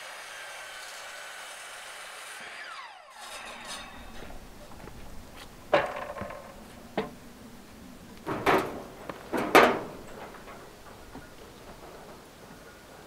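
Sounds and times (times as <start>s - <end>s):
wooden planks knocking: 5.7s - 7.2s, 8.2s - 12.7s.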